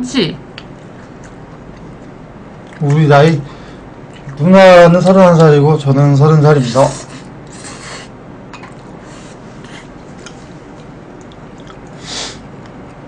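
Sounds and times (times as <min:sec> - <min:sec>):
person chewing and slurping: 0:08.8 - 0:12.8.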